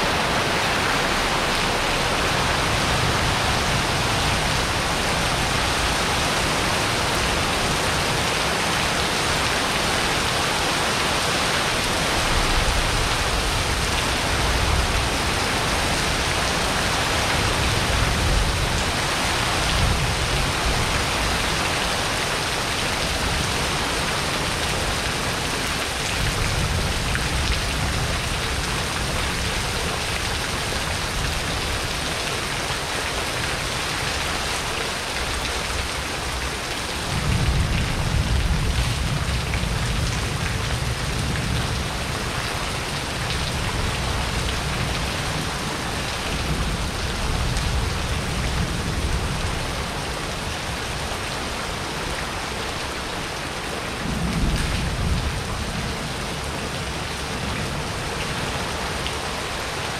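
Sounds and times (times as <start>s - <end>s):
heavy rain on a patio: 0.0s - 59.9s
water streaming off a roof: 0.0s - 59.9s.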